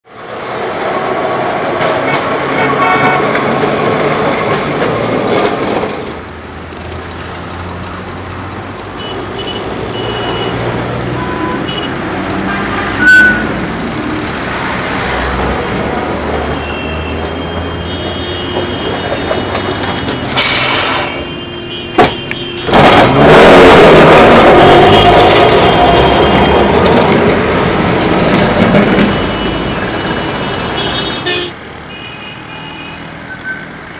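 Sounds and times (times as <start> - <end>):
street traffic with buses and trucks: 0.0 - 33.9
tram passing on rails: 0.1 - 33.9.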